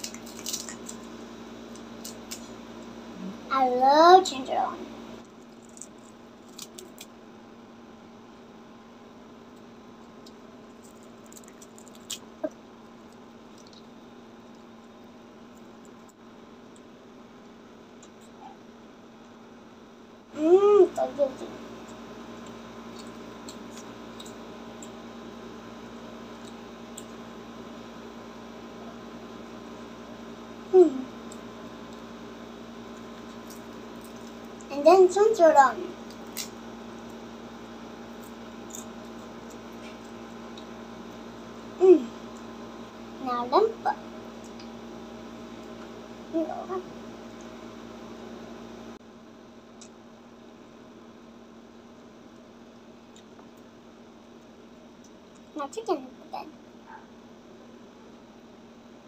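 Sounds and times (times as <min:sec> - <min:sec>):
electrical hum: 0:00.0 - 0:59.0
child humming: 0:20.4 - 0:21.4, 0:30.7 - 0:31.2, 0:41.8 - 0:42.2
child eating mouth noises: 0:30.7 - 0:31.4.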